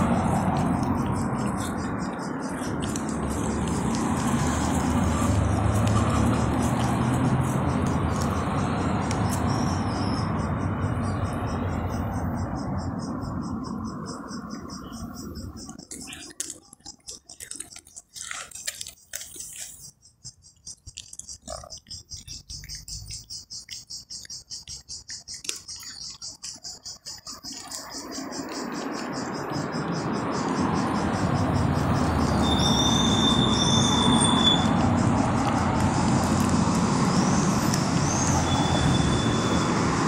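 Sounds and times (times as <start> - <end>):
cat chewing fish: 0.0 - 9.3, 15.6 - 29.2
vehicle passing: 0.0 - 16.0, 27.3 - 40.0
high-pitched chirping: 19.8 - 30.5.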